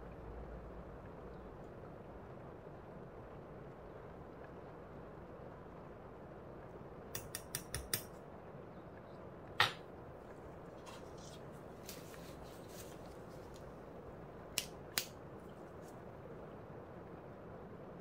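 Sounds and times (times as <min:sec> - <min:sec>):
small metallic clicks of tweezers: 0:07.2 - 0:08.1
tweezers clacking on tabletop: 0:07.2 - 0:08.1.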